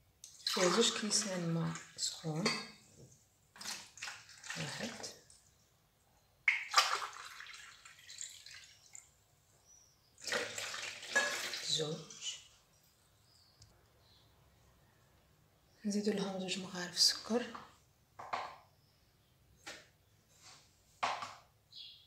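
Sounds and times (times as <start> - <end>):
water splashing into bowl: 0.2 - 2.8, 3.6 - 5.4, 6.5 - 9.1, 10.2 - 12.3.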